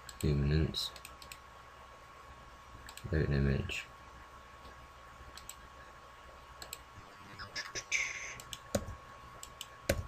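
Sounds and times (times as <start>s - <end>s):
computer mouse clicking: 0.9s - 1.4s, 2.8s - 3.1s, 5.3s - 5.6s, 6.6s - 6.8s, 8.3s - 10.0s.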